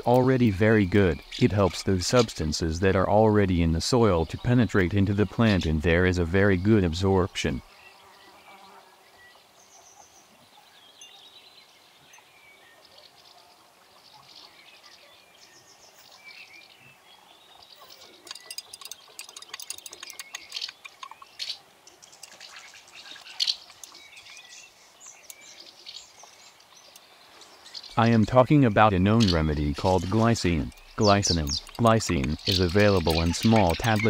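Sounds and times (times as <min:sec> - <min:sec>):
birds chirping: 0:00.0 - 0:34.0
spoon clinking against glass: 0:18.3 - 0:20.5.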